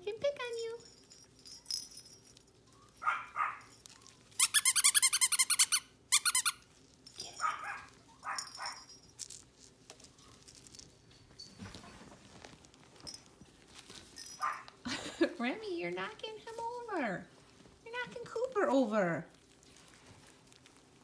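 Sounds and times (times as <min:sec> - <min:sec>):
puppies yipping: 0:02.7 - 0:06.6, 0:07.4 - 0:08.9, 0:14.4 - 0:14.7.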